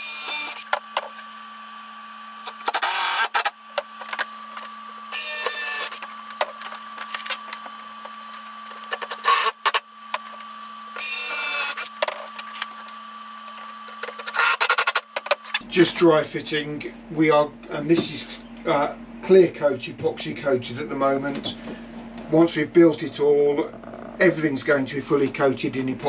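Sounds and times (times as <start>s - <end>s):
electric drill whining: 0.0s - 1.7s, 2.3s - 9.9s, 10.6s - 15.6s.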